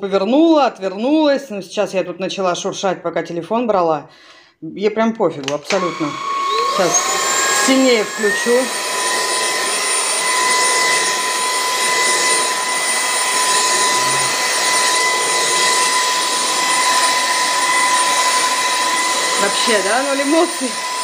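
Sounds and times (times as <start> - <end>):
vacuum cleaner running: 5.7 - 21.0.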